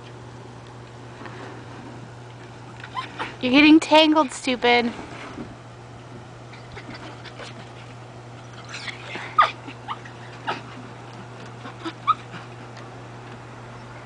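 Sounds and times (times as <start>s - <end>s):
steady low hum: 0.0s - 14.0s
small dog whimpering and yipping: 8.4s - 10.6s, 11.6s - 12.4s.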